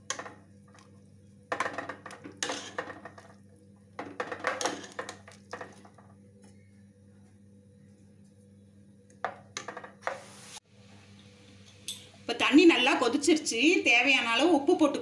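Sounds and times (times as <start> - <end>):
metal ladle scraping a pot: 2.4 - 2.9.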